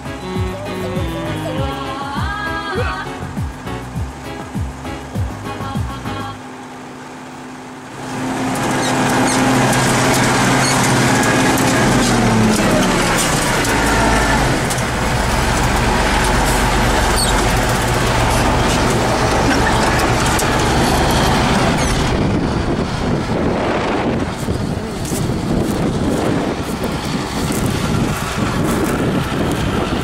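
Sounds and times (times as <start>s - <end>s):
tractor diesel engine roaring: 0.0s - 30.0s
cab rattling: 8.0s - 30.0s.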